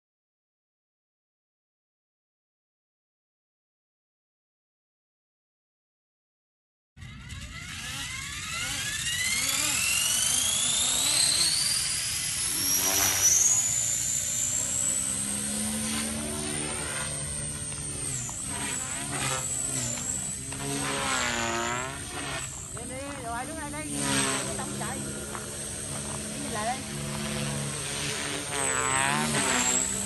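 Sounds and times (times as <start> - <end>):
rc helicopter motor whine: 7.0 - 30.0.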